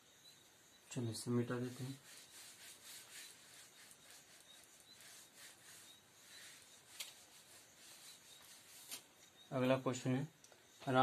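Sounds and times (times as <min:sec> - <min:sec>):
cloth wiping whiteboard: 0:01.4 - 0:09.0.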